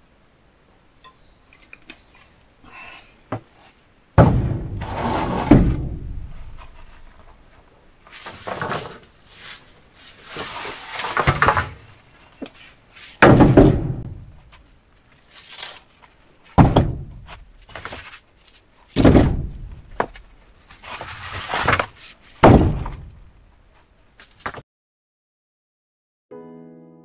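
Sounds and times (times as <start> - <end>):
rustling and scraping: 3.4 - 13.2, 14.2 - 24.6
heavy thuds: 4.2 - 7.5, 13.2 - 14.5, 16.6 - 17.9, 19.0 - 20.3.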